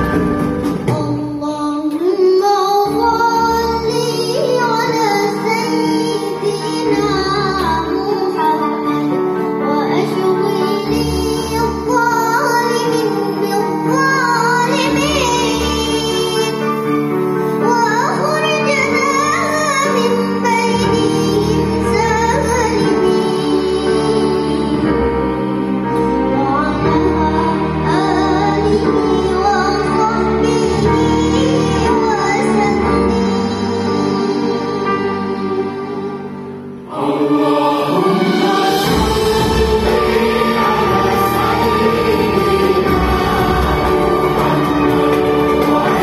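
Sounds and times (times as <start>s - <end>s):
instrumental accompaniment: 0.0s - 46.0s
child singing: 0.9s - 9.0s, 9.6s - 16.7s, 17.6s - 24.8s, 26.4s - 36.1s
orchestra strings sustaining chords: 33.9s - 46.0s.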